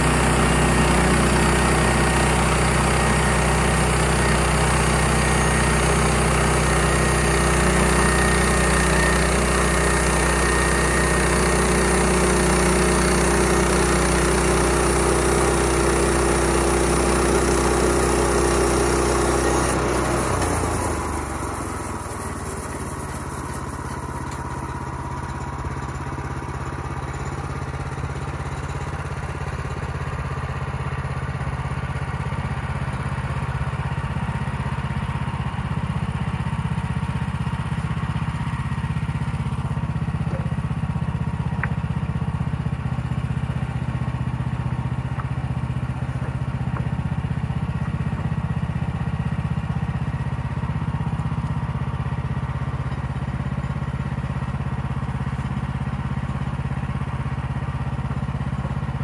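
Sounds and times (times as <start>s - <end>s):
gas engine running: 0.0s - 59.0s.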